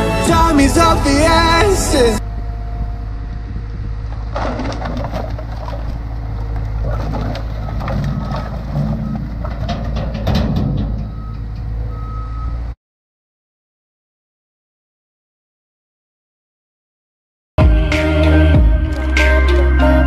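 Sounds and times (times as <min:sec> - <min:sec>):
loader engine running: 0:00.0 - 0:12.8
firewood clattering onto pile: 0:04.1 - 0:10.9.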